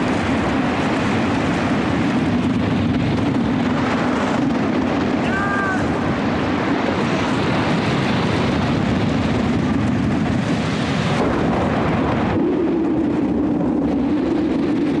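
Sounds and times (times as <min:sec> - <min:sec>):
heavy surf: 0:00.0 - 0:15.0
wind rushing: 0:00.0 - 0:15.0
brief high cry: 0:05.2 - 0:05.9.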